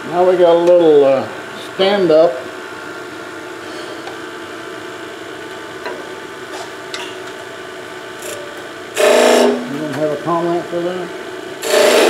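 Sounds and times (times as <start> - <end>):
wood lathe running: 8.2 - 10.5, 11.6 - 12.0.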